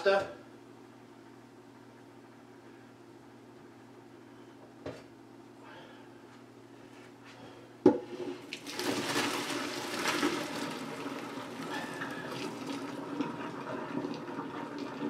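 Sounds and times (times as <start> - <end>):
water pouring into colander: 8.4 - 15.0.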